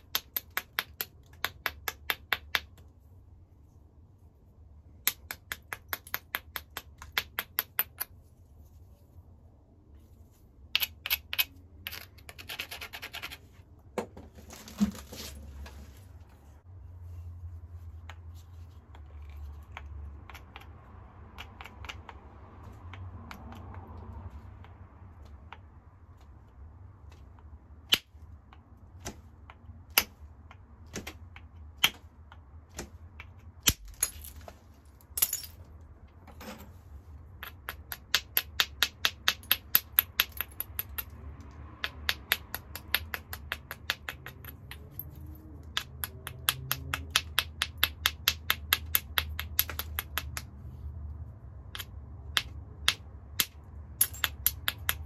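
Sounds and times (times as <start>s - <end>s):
stone clicking on stone: 0.0s - 2.9s, 5.0s - 8.2s, 10.6s - 13.4s, 18.0s - 24.0s, 27.4s - 34.5s, 37.3s - 50.6s, 51.6s - 55.0s.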